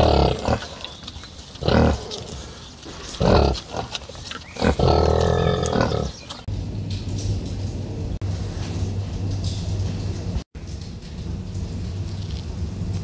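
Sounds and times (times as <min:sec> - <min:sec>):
farmyard animal calls: 0:00.0 - 0:06.5.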